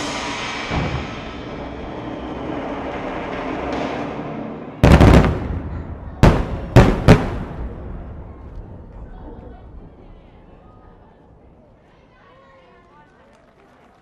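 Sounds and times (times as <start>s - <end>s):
firework shells bursting: 4.8s - 8.1s.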